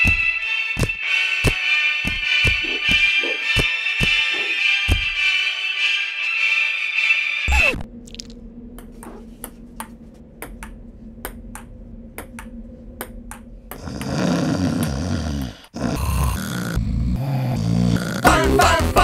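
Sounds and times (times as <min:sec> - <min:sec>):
steady low hum: 0:07.5 - 0:17.8
jumble of low sounds: 0:07.5 - 0:19.0.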